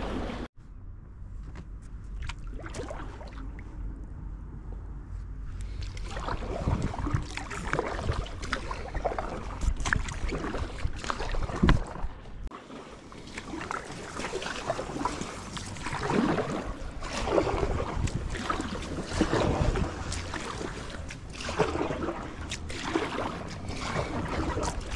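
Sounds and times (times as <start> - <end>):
paddle splashing in water: 0.0 - 0.5, 2.1 - 3.7, 5.7 - 24.9
water dripping off paddle: 13.2 - 24.9.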